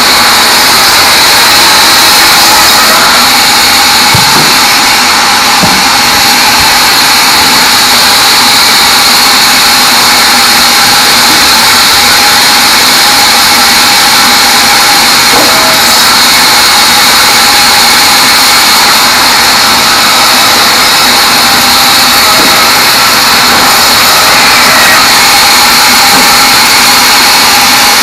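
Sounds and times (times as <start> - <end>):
band saw cutting logs: 0.0 - 28.0
dull knocks: 4.1 - 4.7, 5.6 - 6.0.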